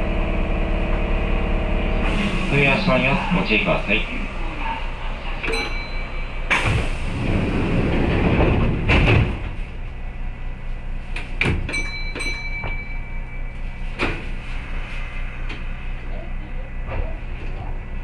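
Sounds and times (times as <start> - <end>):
train doors sliding shut: 2.0 - 10.0, 11.1 - 13.0, 13.8 - 15.7.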